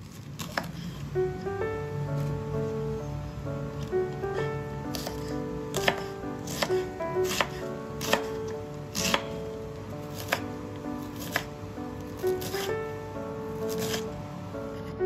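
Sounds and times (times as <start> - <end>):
knife slicing cabbage: 0.0 - 1.1, 4.9 - 9.4, 10.1 - 11.5, 12.1 - 12.8, 13.6 - 14.1
background music: 1.1 - 15.0.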